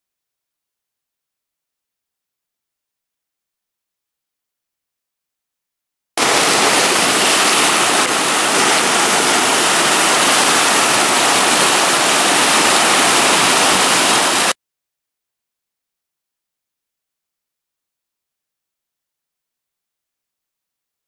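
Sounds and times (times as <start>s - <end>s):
rushing whitewater rapids: 6.2s - 14.6s.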